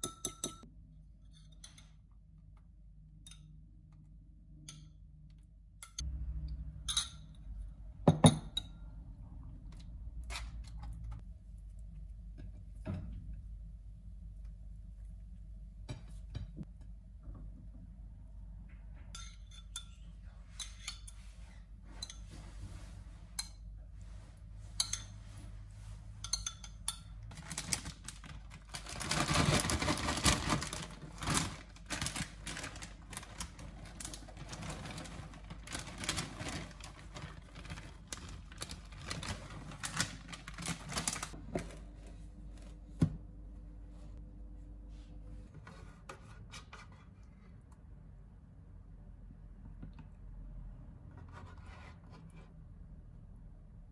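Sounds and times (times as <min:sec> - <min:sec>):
low steady hum: 0:00.0 - 0:53.9
scraping and rustling: 0:27.3 - 0:41.9.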